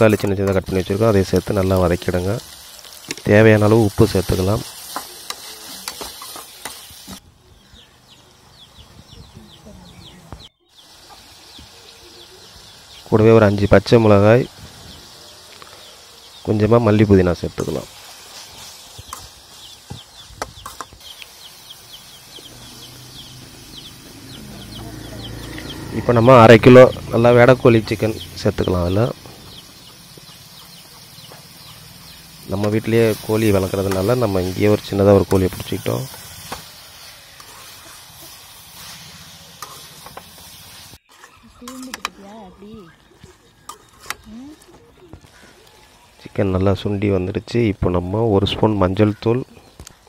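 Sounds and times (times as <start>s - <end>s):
chickens clucking: 19.9s - 40.2s.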